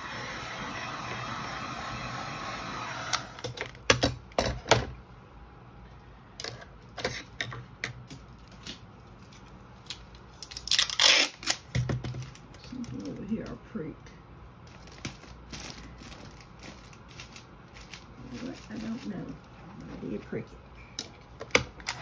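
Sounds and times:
cellophane wrap crinkling: 0:08.2 - 0:13.4, 0:14.6 - 0:19.9.

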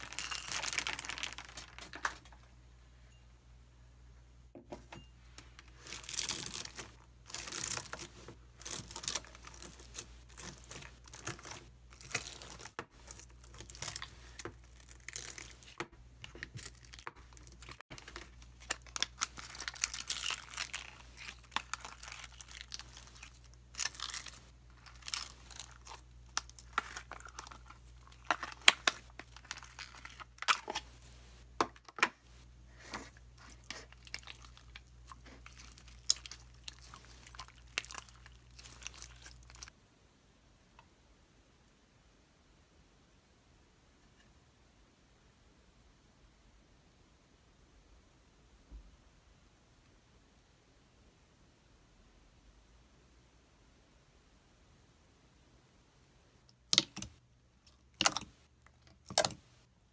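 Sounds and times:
slime crackling and tearing: 0:00.0 - 0:01.8, 0:05.9 - 0:15.8, 0:16.6 - 0:30.8, 0:33.4 - 0:39.7, 0:57.9 - 0:59.4.

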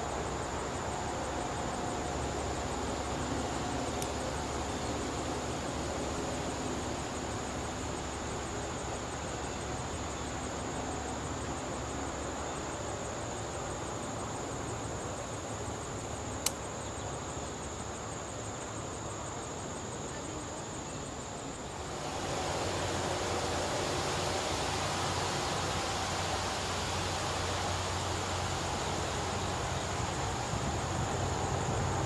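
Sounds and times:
insects trilling: 0:00.0 - 0:32.0
sharp click: 0:16.4 - 0:16.6.

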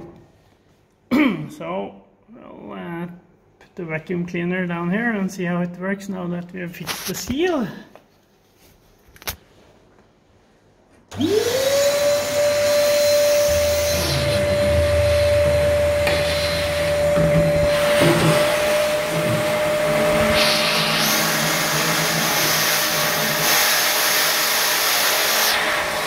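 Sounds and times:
vacuum cleaner motor whining: 0:11.1 - 0:26.0.

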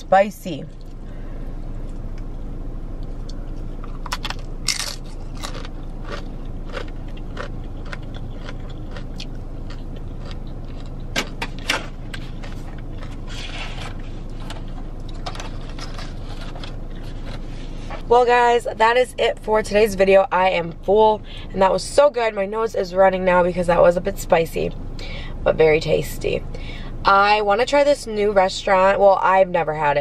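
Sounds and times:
car cabin hum: 0:00.0 - 0:24.8
crunching tortilla chips: 0:03.9 - 0:17.5.

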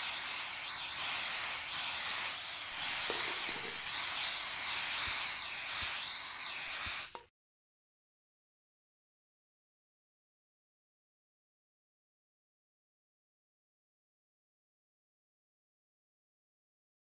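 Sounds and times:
spray paint cans hissing: 0:00.0 - 0:07.3.

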